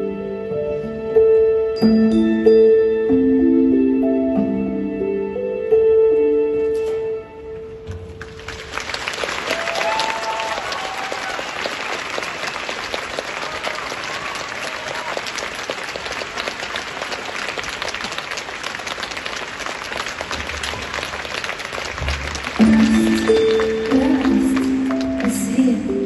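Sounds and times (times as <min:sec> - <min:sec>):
large audience applauding: 0:08.1 - 0:25.8.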